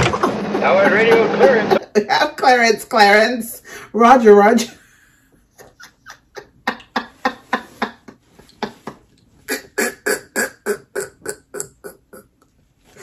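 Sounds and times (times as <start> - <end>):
woman laughing: 5.5 - 10.0.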